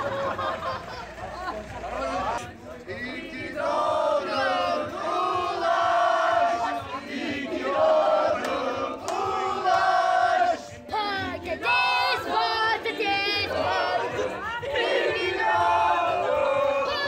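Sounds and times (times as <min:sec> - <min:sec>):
group of people yelling: 0:13.4 - 0:17.0.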